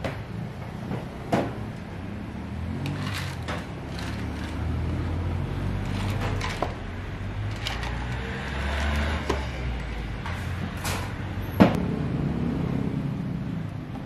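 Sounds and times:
ice cubes clattering into cups: 5.9 - 6.8, 7.5 - 8.2.

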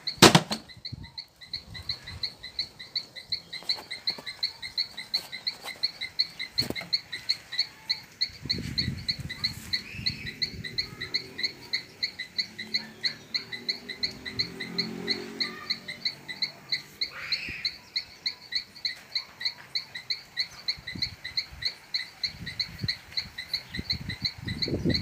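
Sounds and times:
animal chirping call: 0.0 - 25.0
loud sharp knock: 0.2 - 0.7.

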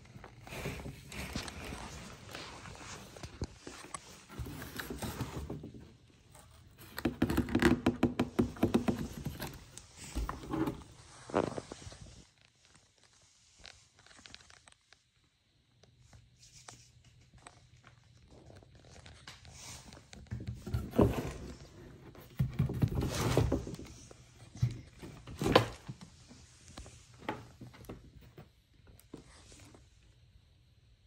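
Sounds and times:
cardboard rustling and scraping: 0.0 - 12.4, 18.8 - 29.9.

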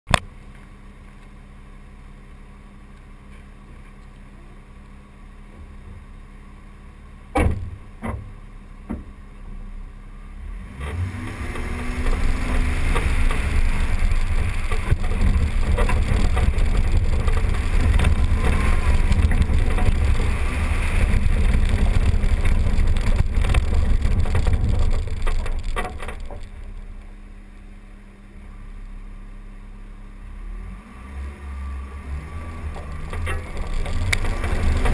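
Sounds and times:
rough rumble with hiss: 3.0 - 29.5, 30.3 - 34.9
vehicle driving on dirt track: 7.2 - 28.0, 30.0 - 34.9
sharp knocks: 7.4 - 9.1.

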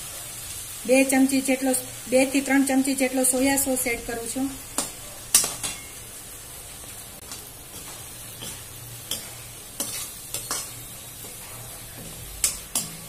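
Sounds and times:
vegetables sizzling in a wok: 0.0 - 13.0
spatula scraping and tapping pan: 7.2 - 13.0.

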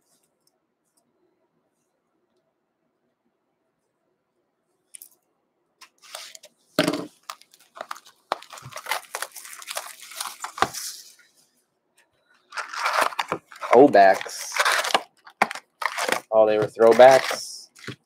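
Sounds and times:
wrapper and cardboard crinkling: 5.8 - 11.2, 12.4 - 18.0
packaging ripping: 7.2 - 11.0, 12.5 - 18.0.

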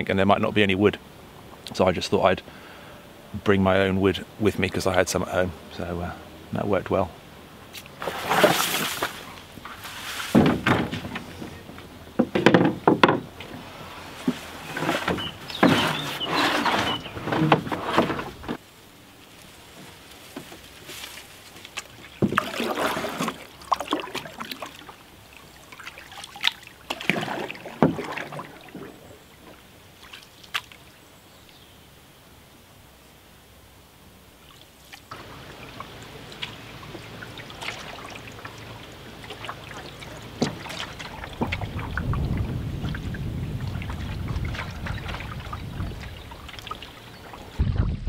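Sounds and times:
gear knocking and scraping in canoe: 7.7 - 18.6, 19.5 - 30.8, 34.8 - 48.0
paddle strokes splashing in water: 7.8 - 18.6, 19.3 - 31.0, 34.4 - 47.9.

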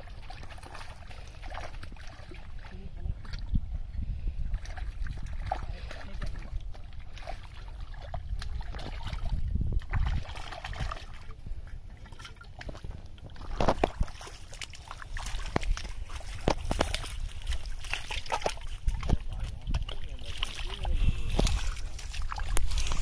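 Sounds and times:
hands splashing in muddy water: 4.5 - 23.0
feet stepping through mud: 12.0 - 23.0.

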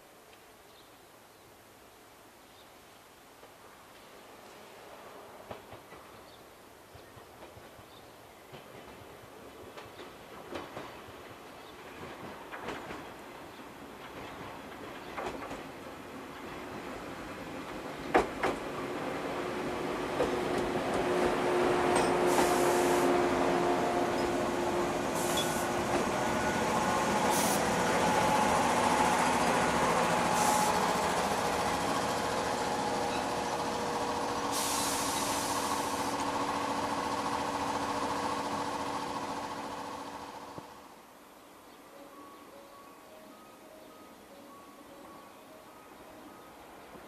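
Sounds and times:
train wheel and rail rumble: 3.4 - 41.2
train motor tones: 20.2 - 39.1
air hiss bursts: 22.1 - 23.4, 25.0 - 26.1, 27.0 - 28.5, 30.2 - 31.0, 34.3 - 36.4.

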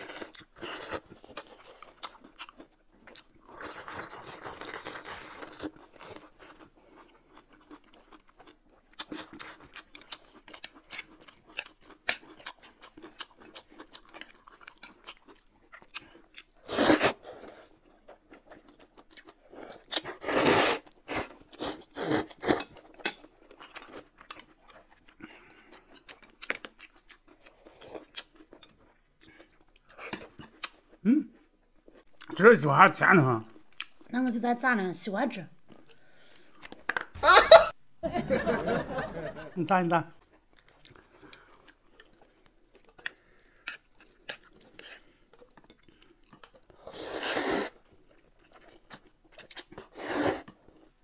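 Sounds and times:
chewing and crunching: 0.0 - 32.5, 33.2 - 34.4, 40.2 - 51.0
slurping noodles: 16.6 - 17.7, 20.2 - 22.7, 46.8 - 47.8, 49.8 - 50.6.

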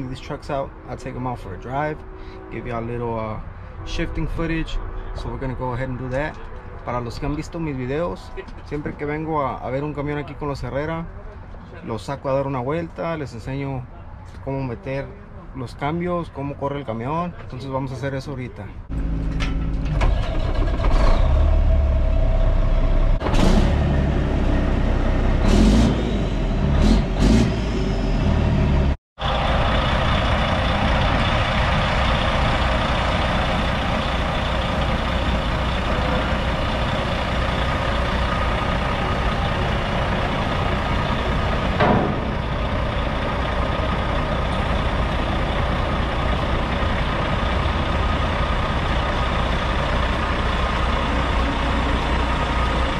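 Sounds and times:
diesel truck engine starting: 18.8 - 52.9
truck idling: 18.8 - 52.9.

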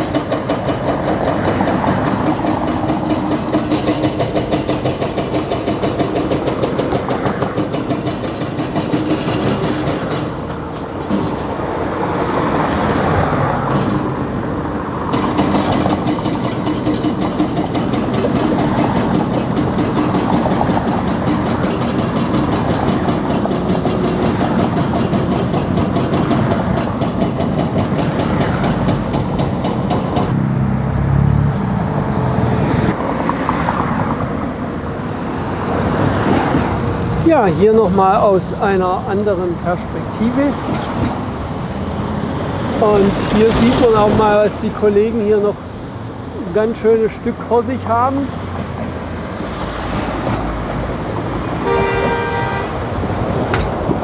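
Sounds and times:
hydraulic breaker pounding concrete: 0.0 - 11.6, 15.0 - 30.3
diesel engines running: 0.0 - 54.0.

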